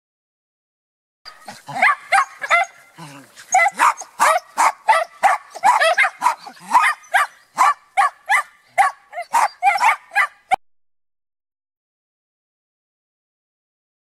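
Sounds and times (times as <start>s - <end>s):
dogs barking excitedly: 1.3s - 10.6s.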